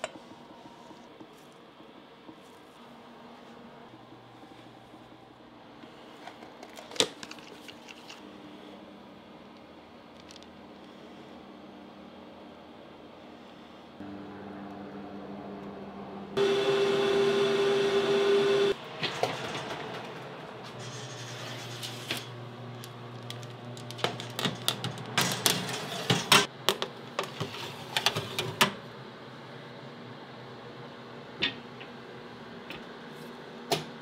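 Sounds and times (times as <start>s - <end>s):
oven fan humming: 8.2s - 34.0s.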